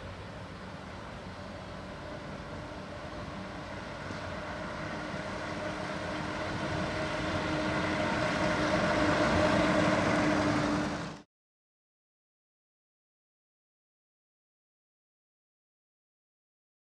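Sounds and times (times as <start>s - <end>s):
bus engine hum: 0.0s - 11.3s.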